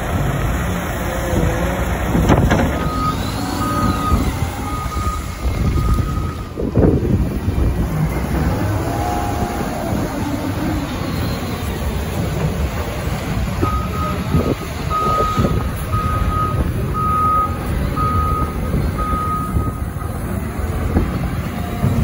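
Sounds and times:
diesel engine running: 0.0s - 22.0s
backup alarm beeping: 2.8s - 6.5s, 13.6s - 20.2s.

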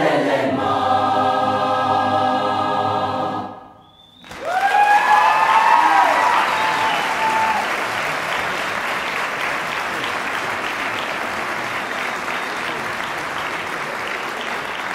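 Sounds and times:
choir holding note: 0.0s - 4.0s
audience applauding: 4.2s - 14.9s.

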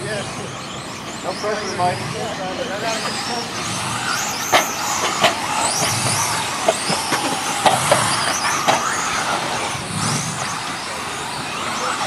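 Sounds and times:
electric motor whines: 0.0s - 12.0s
sharp clacks: 4.1s - 9.7s.

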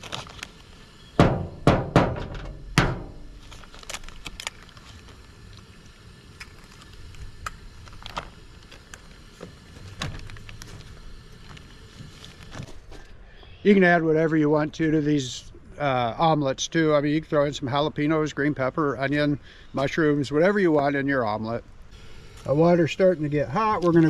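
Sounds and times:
plastic bag clicks and rustles: 0.0s - 0.8s, 3.2s - 5.6s, 6.4s - 9.2s, 9.8s - 12.8s.

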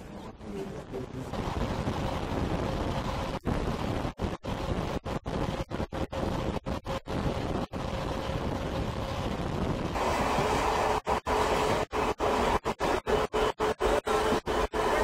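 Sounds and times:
wind rushing over microphone: 1.3s - 11.0s.

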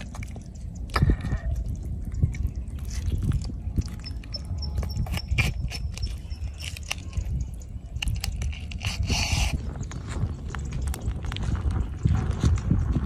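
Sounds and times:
sticky clicks and sauce drips: 0.0s - 5.2s
low rumble: 7.3s - 13.0s.

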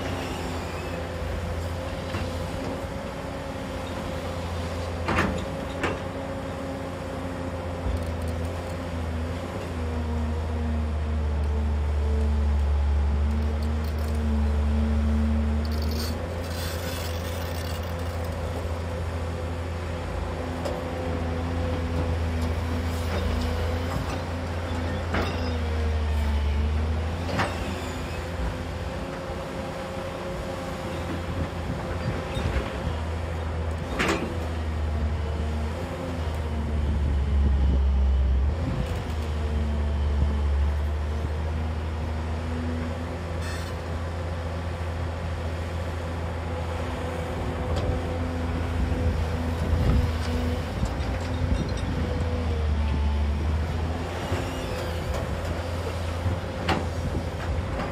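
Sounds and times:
hydraulic whine: 0.0s - 2.3s, 22.9s - 28.8s, 52.6s - 57.2s
excavator diesel engine under load: 0.0s - 57.9s.

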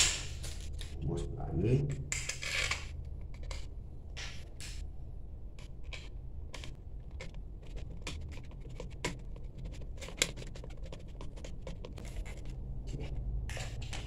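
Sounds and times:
screwdriver scraping plastic faceplate: 5.6s - 14.0s.

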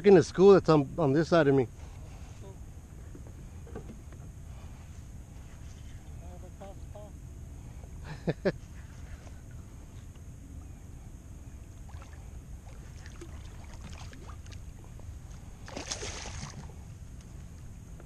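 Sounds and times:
fish splashing at water surface: 11.9s - 14.7s, 15.6s - 16.8s.

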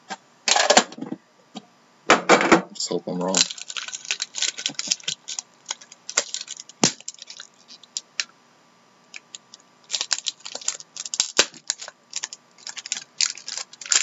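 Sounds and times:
foil pack crinkling: 3.1s - 8.3s, 9.1s - 14.0s.

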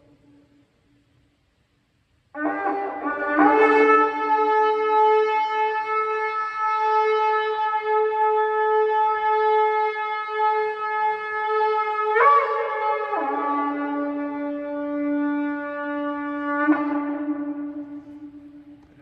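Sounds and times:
shofar blast: 2.4s - 18.9s.

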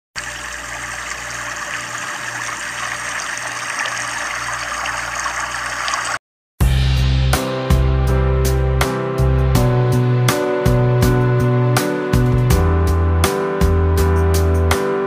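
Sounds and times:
rushing water noise: 0.2s - 6.2s.

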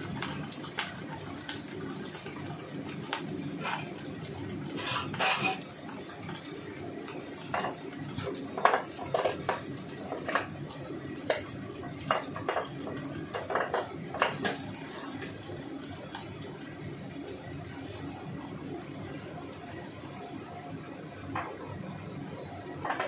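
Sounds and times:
kitchen utensils and dishes clinking: 3.5s - 6.5s, 7.1s - 10.6s, 11.3s - 15.4s, 22.7s - 23.0s.

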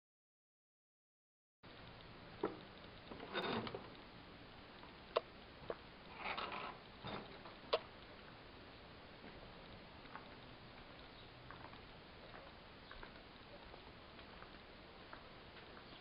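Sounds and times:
faint steady hiss: 1.6s - 16.0s.

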